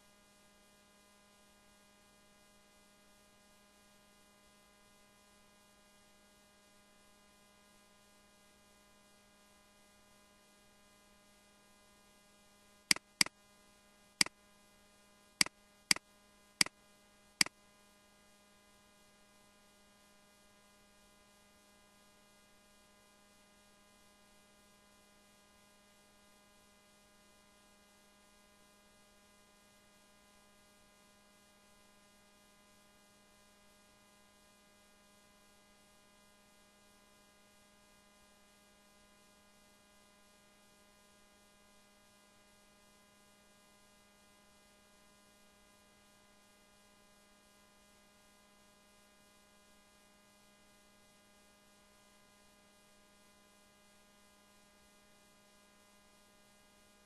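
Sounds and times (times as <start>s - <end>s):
faint electrical hum: 0.0s - 57.0s
sharp clicks: 12.9s - 13.2s.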